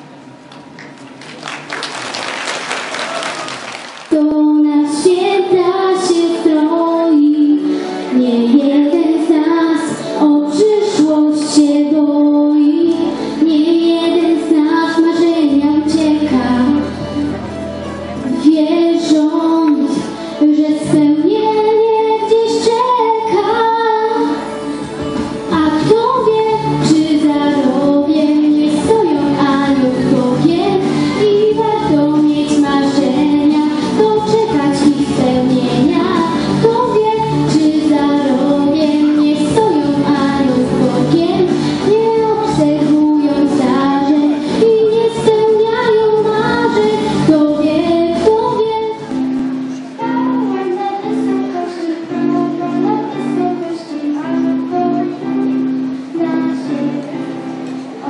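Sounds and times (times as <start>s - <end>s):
applause: 0.5s - 4.2s
instrumental accompaniment: 2.6s - 58.0s
girl singing into a microphone: 4.1s - 17.3s, 18.2s - 58.0s.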